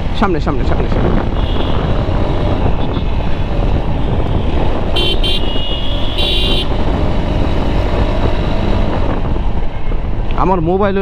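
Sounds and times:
motorcycle engine rumble: 0.0s - 11.0s
wind: 0.0s - 11.0s
horn toots: 1.4s - 1.9s, 4.8s - 6.8s.

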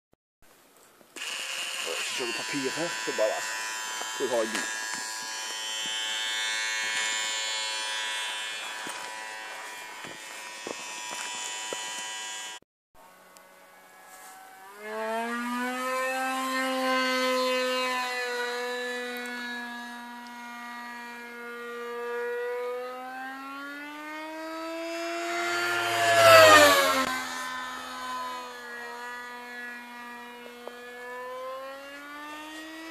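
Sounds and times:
model plane motor whining: 1.2s - 32.9s.

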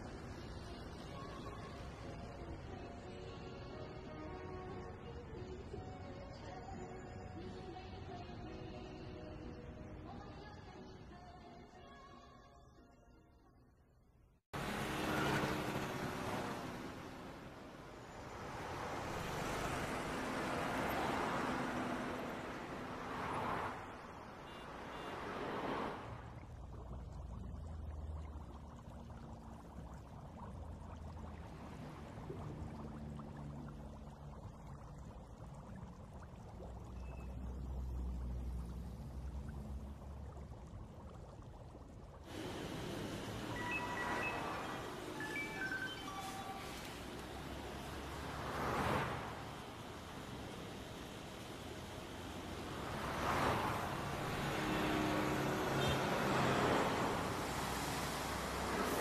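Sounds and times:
aquarium water bubbling: 14.5s - 59.0s
cars passing by: 14.5s - 59.0s
low pump hum: 26.1s - 59.0s
faint high tones: 43.2s - 47.5s.

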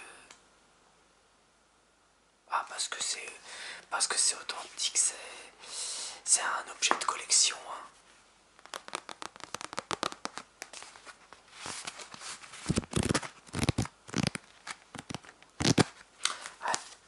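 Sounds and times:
paper pages riffling ticks: 8.6s - 17.0s
paper rustling and rubbing: 8.6s - 17.0s.

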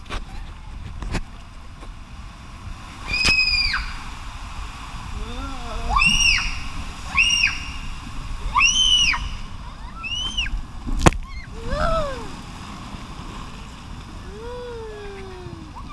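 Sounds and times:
rushing water: 0.0s - 15.9s
child screaming: 3.0s - 4.0s, 5.2s - 7.7s, 8.5s - 10.6s, 11.2s - 12.3s
person calling: 5.2s - 6.2s, 11.5s - 12.4s, 14.3s - 15.8s.

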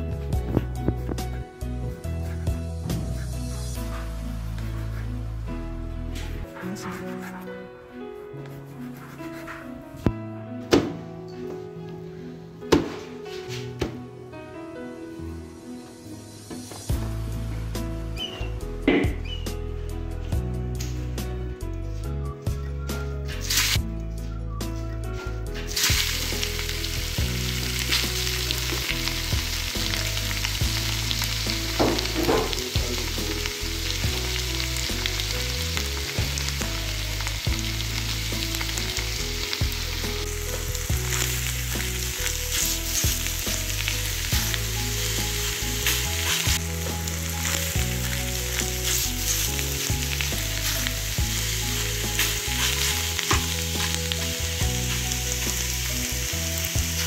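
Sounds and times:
meat sizzling in a metal pan: 23.3s - 23.8s, 25.2s - 57.0s.

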